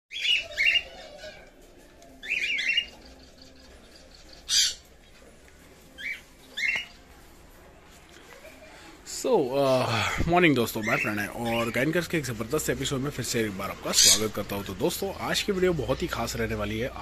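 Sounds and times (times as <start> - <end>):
cockatiels squawking: 0.1 - 1.6, 2.2 - 3.0, 4.5 - 4.9, 6.0 - 6.9.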